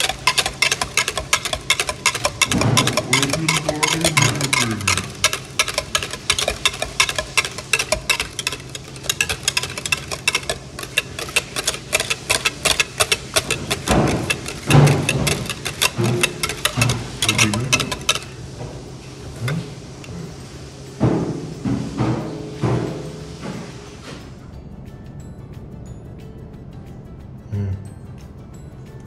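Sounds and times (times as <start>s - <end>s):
rapid sharp taps: 0.0s - 18.4s.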